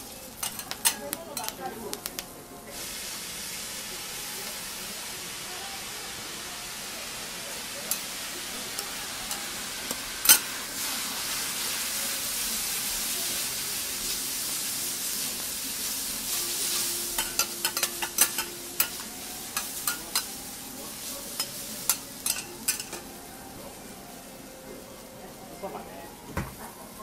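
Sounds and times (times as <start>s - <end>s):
noodles sizzling on griddle: 0.0s - 27.0s
metal spatulas clicking and scraping: 0.4s - 1.6s, 16.7s - 20.3s, 21.4s - 23.0s.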